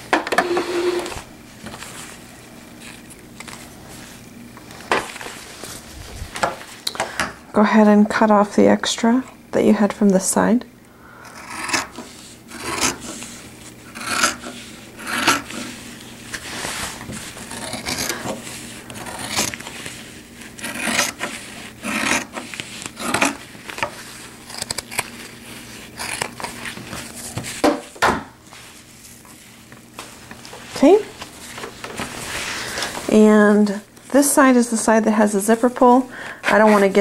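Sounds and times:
fabric rustling: 1.0s - 6.8s, 15.7s - 17.6s, 28.4s - 34.2s
scissors snipping fabric: 11.3s - 12.0s, 12.6s - 13.0s, 14.0s - 15.6s, 17.4s - 19.9s, 20.6s - 25.4s, 26.0s - 27.0s.

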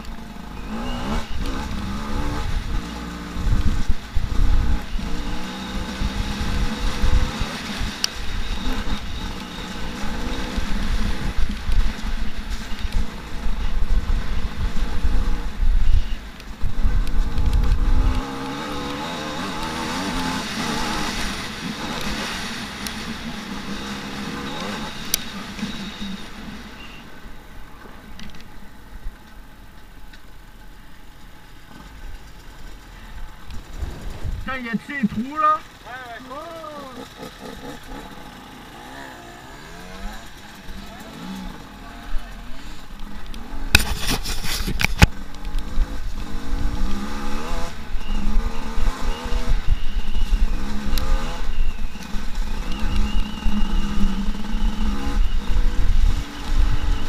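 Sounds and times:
motorcycle engine running at low revs: 0.0s - 57.0s.

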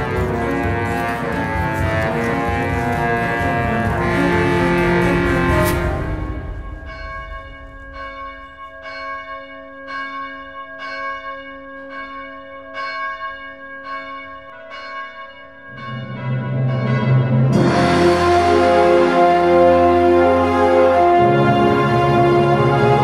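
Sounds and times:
background music: 0.0s - 8.8s, 16.1s - 23.0s
bell tolling: 0.0s - 21.4s.

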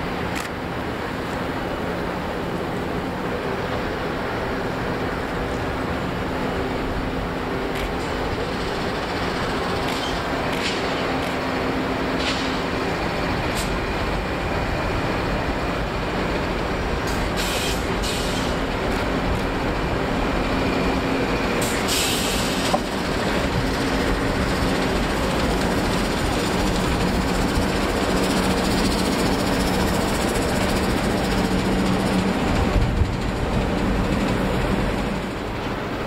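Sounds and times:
diesel locomotive engines droning: 0.0s - 36.0s
wheel clicks and hisses: 7.7s - 11.5s, 17.0s - 19.5s, 21.6s - 23.5s.

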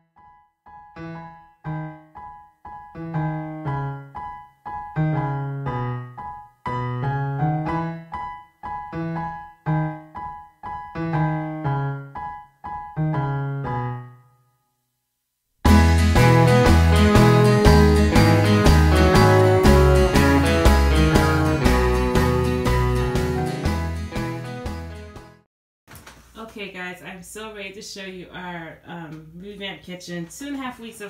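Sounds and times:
slow piano music: 0.1s - 14.6s, 15.6s - 25.4s.

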